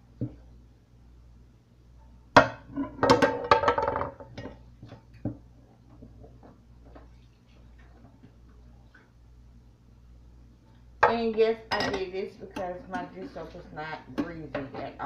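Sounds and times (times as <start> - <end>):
glasses and dishes clinking in sink: 11.0 - 12.1.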